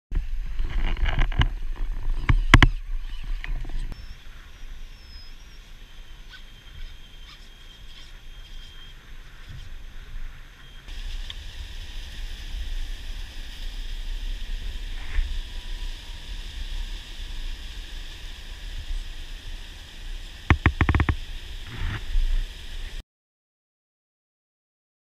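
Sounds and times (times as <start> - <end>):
sharp knocks: 20.5 - 21.2.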